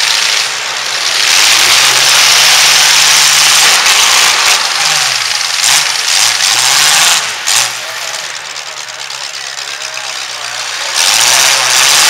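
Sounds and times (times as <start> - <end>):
truck engines running hard: 0.0 - 12.0.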